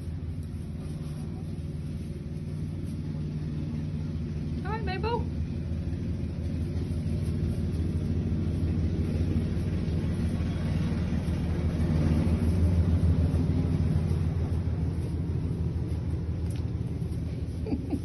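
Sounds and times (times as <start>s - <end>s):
low rumble with humming drone: 0.0s - 18.0s.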